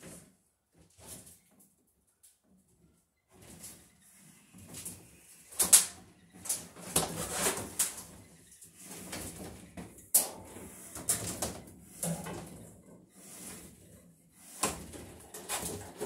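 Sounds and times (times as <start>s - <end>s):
cable scraping along wooden studs: 6.4s - 16.0s.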